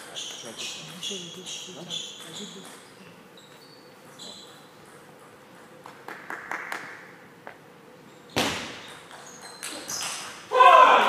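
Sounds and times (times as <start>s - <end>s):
table tennis ball bouncing: 8.4s - 10.3s.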